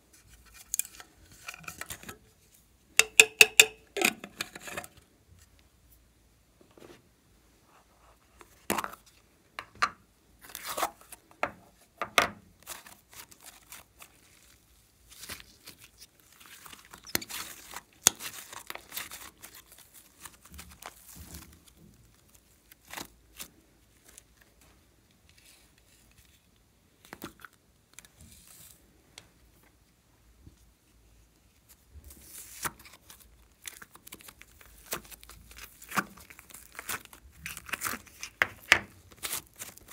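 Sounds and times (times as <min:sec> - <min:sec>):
slime crackling and popping: 0:33.6 - 0:39.9.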